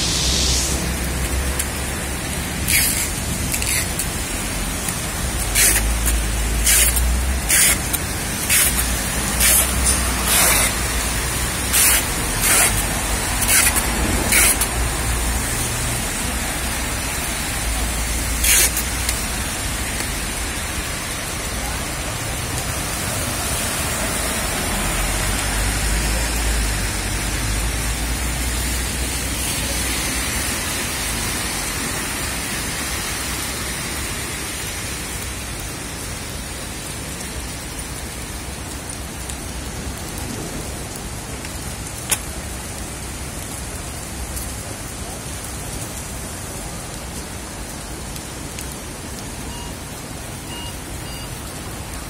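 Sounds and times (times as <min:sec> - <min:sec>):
short loud bursts of noise: 0:00.0 - 0:01.9
heavy rain on street: 0:00.0 - 0:52.0
road traffic passing: 0:00.0 - 0:52.0.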